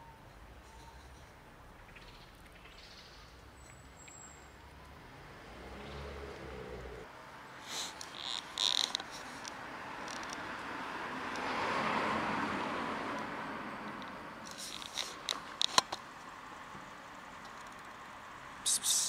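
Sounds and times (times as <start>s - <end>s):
handling scraping and rustling: 14.5s - 16.0s
broad rush of noise: 18.6s - 19.0s.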